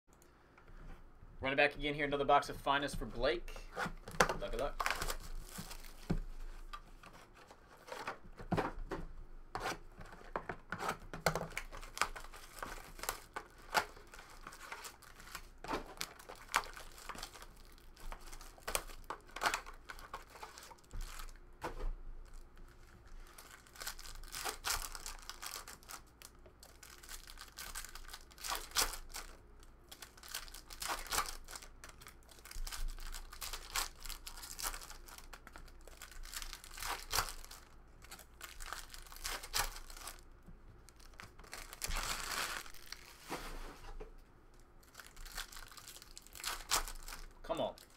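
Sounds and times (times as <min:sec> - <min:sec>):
foil packs crinkling: 0:04.2 - 0:06.8, 0:11.3 - 0:21.4, 0:22.2 - 0:43.6, 0:44.8 - 0:47.9.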